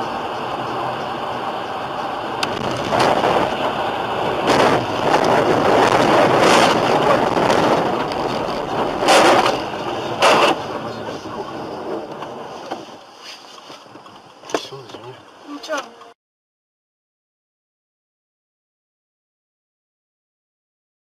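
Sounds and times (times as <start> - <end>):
road and wind noise: 0.0 - 16.2.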